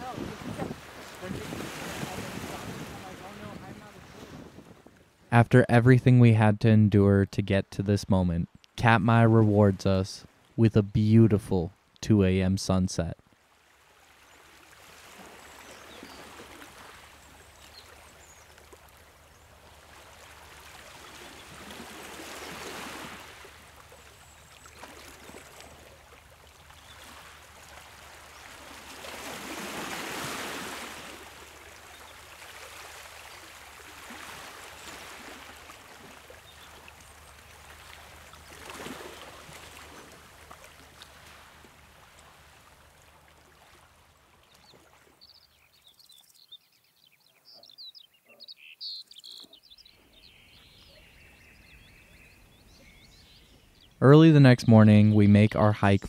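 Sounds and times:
water washing in swells: 0:00.0 - 0:05.0, 0:13.4 - 0:45.2
small birds chirping: 0:26.7 - 0:27.3, 0:31.8 - 0:32.3, 0:36.2 - 0:40.2, 0:43.6 - 0:54.0.

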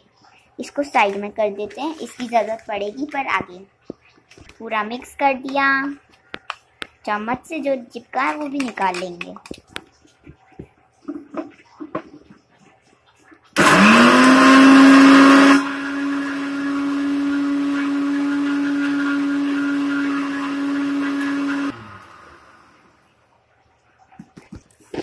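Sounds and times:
mixer grinder motor humming: 0:13.6 - 0:23.0.

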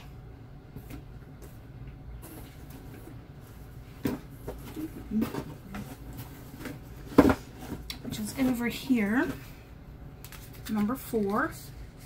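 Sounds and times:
rummaging through boxed items: 0:02.2 - 0:09.6.

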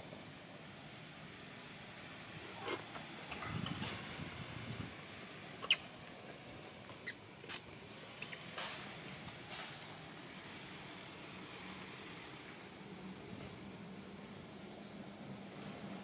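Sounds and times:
baby monkey squeaking: 0:05.6 - 0:05.9, 0:08.2 - 0:08.5.

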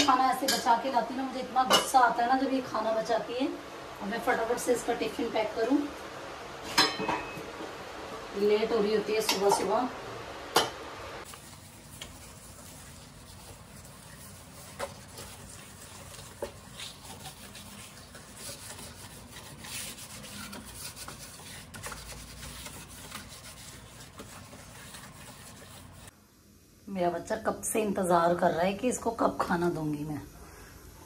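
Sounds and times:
scrub pad scraping stove top: 0:11.2 - 0:26.1.

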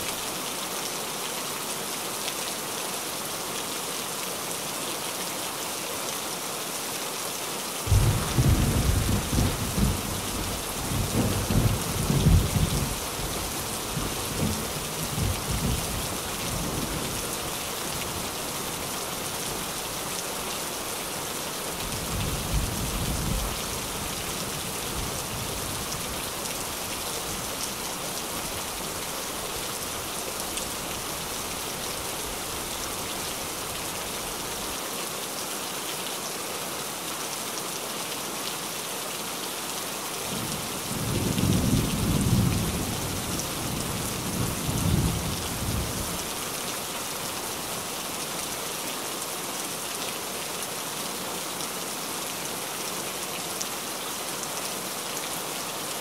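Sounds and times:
rain on a tin roof: 0:00.0 - 0:56.0
thunder rolling: 0:07.9 - 0:10.1.

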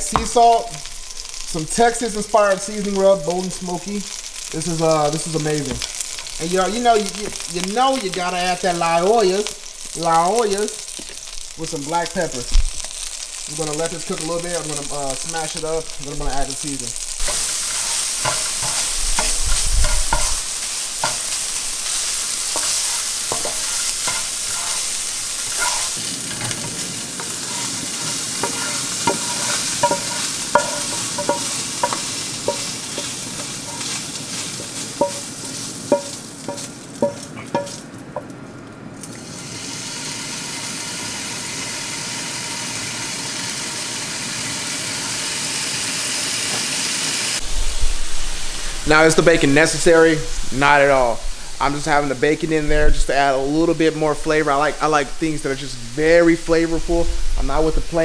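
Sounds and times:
beef sizzling in a skillet: 0:00.0 - 0:37.8, 0:39.1 - 0:54.8
utensil stirring meat: 0:00.0 - 0:38.3
spoon scraping and tapping pan: 0:17.2 - 0:21.4, 0:22.5 - 0:24.9, 0:25.5 - 0:26.8, 0:28.4 - 0:34.0, 0:34.7 - 0:38.3.

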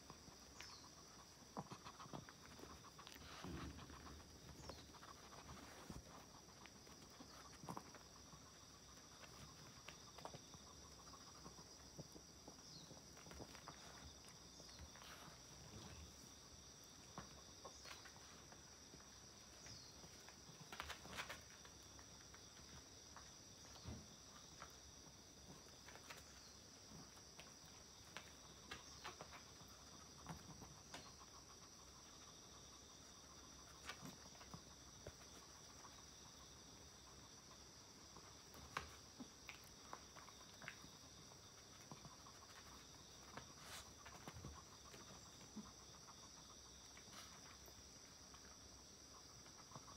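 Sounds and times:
dog sniffing: 0:00.7 - 0:09.7.

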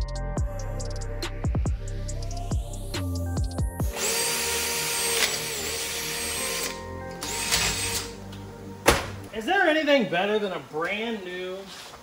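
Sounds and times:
background music: 0:00.0 - 0:10.8
electric drill whining through metal: 0:03.8 - 0:08.2.

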